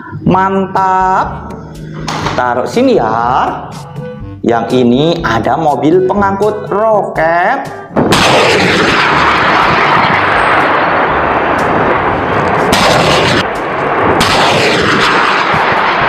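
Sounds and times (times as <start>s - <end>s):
rocket launch rushing noise: 8.0s - 16.0s.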